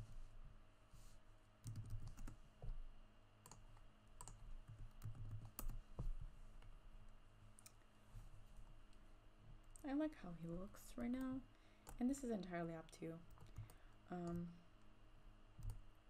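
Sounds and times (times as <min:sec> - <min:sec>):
keyboard keys clicking: 0:04.2 - 0:05.8.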